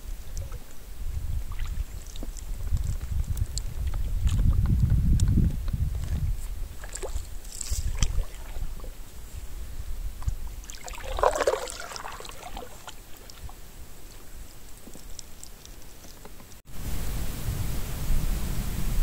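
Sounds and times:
water splashing off paddle: 1.5s - 2.4s, 6.7s - 9.0s, 10.6s - 14.2s.

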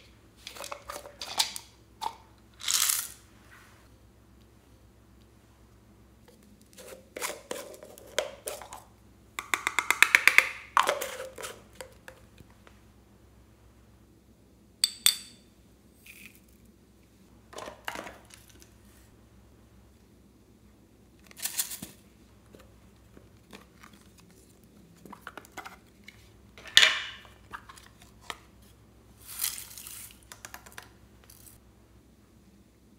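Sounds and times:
tapping on containers: 9.4s - 12.2s.

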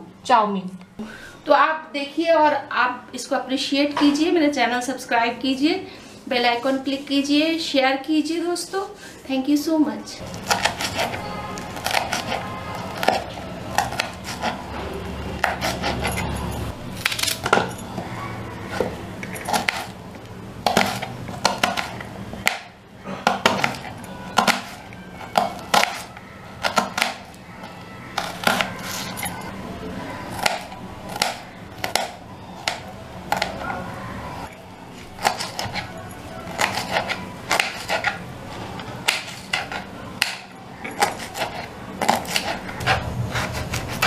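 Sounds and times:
knife chopping on plastic board: 10.4s - 11.2s, 20.6s - 27.3s, 30.4s - 33.6s, 36.6s - 38.2s, 39.0s - 44.0s.

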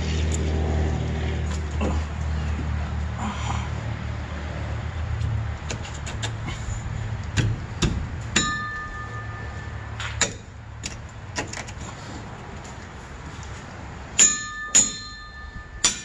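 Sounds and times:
sharp ringing metallic strike: 8.4s - 10.0s, 14.2s - 16.0s.

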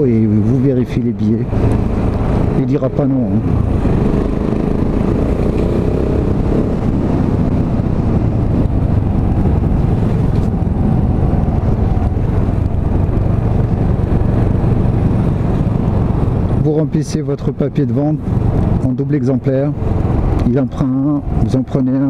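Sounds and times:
wind noise on microphone: 0.0s - 22.0s
motorcycle engine running: 1.5s - 17.0s.

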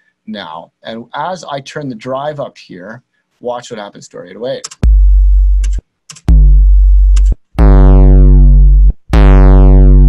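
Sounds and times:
saturated bass note: 6.3s - 10.0s.

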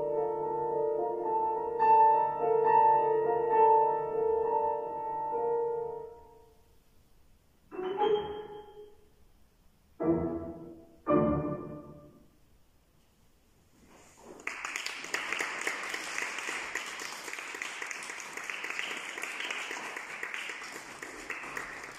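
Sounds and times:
audience applause: 14.3s - 21.9s.

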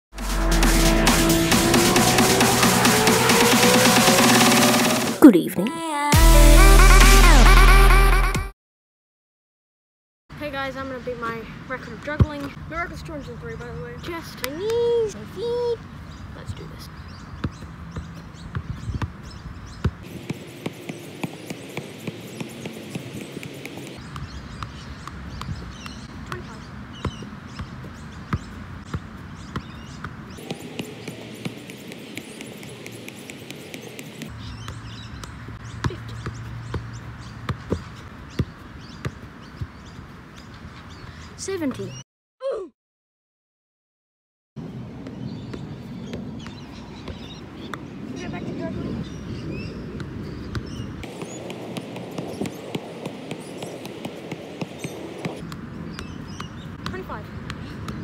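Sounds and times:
soccer ball thudding: 17.4s - 39.9s, 50.0s - 58.0s.

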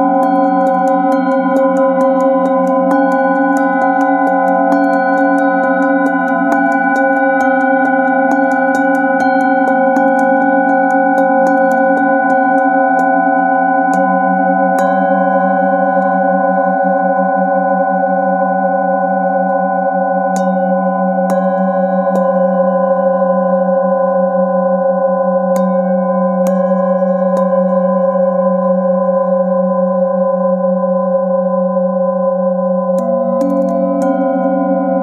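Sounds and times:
mallet strikes on bowl rims: 0.0s - 16.3s, 20.3s - 22.8s, 25.5s - 29.1s, 32.9s - 35.0s
singing bowls ringing drone: 0.0s - 35.0s.

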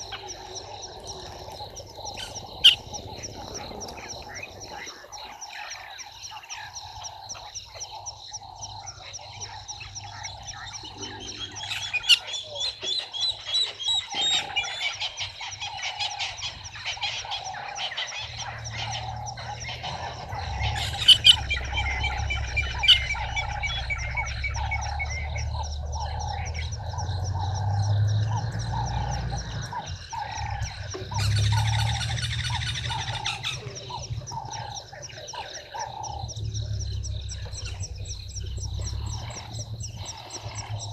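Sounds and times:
bird chirps: 0.0s - 40.9s
frog calling: 0.0s - 40.9s
low rumble: 18.3s - 40.9s.

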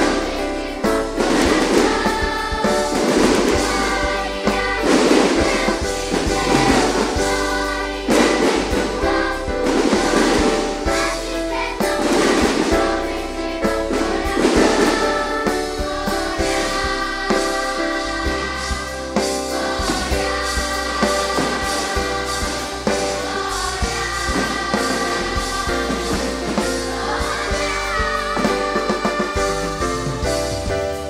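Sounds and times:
choir singing with instruments: 0.0s - 31.0s.

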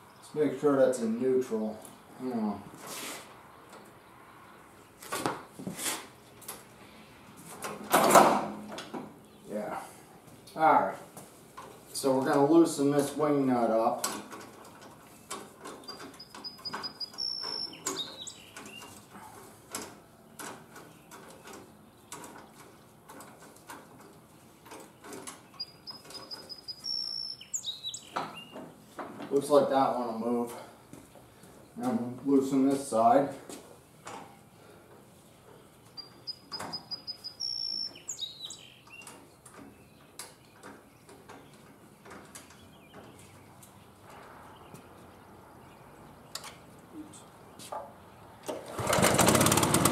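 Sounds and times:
bird whistling: 16.2s - 18.8s, 25.6s - 28.5s, 36.0s - 38.9s.

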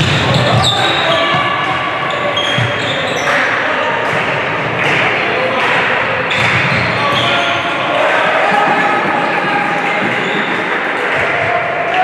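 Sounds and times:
shoes squeaking on court floor: 0.0s - 3.6s, 6.3s - 7.8s
voices echoing in hall: 0.0s - 12.0s.

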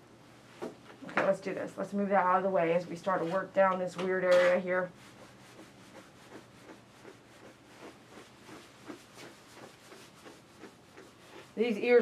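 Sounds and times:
grooming tools rubbing fur: 2.9s - 12.0s.

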